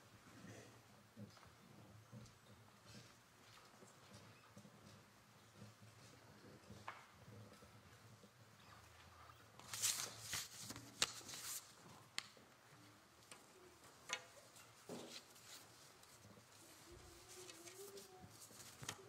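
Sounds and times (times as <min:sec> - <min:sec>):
people rustling: 0:09.1 - 0:11.8.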